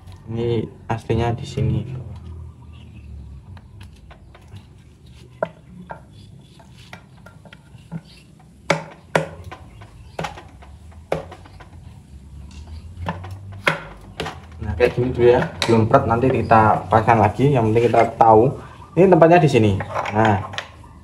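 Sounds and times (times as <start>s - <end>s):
metal parts knocking: 5.4s - 11.9s, 12.6s - 16.4s.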